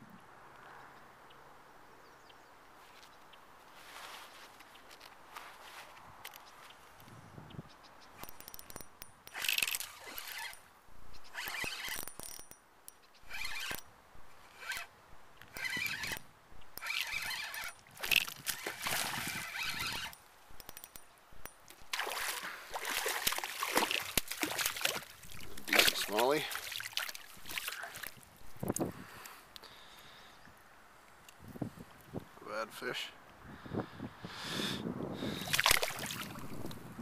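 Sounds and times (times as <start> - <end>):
fishing reel whirring: 8.2 - 12.6, 13.2 - 26.7
fish splashing: 16.8 - 20.1, 21.8 - 28.2, 35.5 - 36.6.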